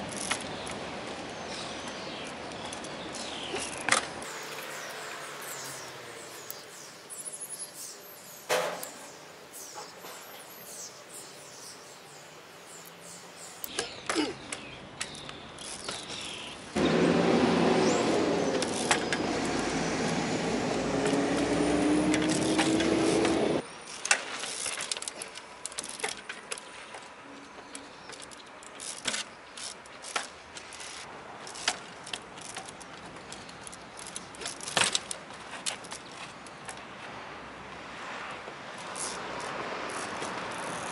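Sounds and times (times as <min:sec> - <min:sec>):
loud steady rising tone: 0:04.2 - 0:09.6, 0:16.8 - 0:23.6.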